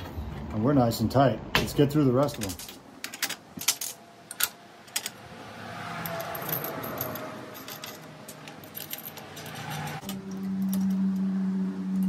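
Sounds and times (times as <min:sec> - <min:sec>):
metal bolts clinking and rattling: 0:02.2 - 0:05.2, 0:06.0 - 0:11.1.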